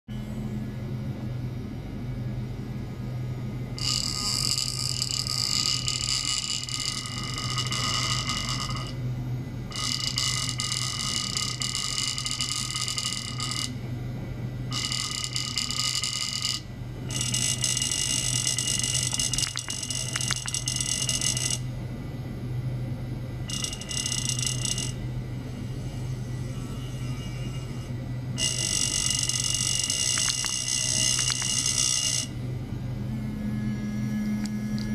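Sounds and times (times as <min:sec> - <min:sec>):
low hum: 0:00.1 - 0:34.9
high steady tones: 0:14.7 - 0:21.7, 0:23.4 - 0:25.0, 0:25.6 - 0:32.4.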